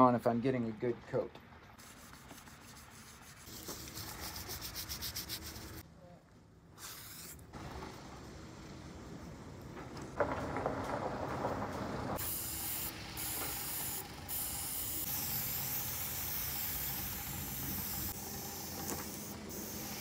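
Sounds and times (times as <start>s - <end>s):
paint sprayer hissing: 1.8s - 5.8s, 6.8s - 7.5s, 12.2s - 20.0s.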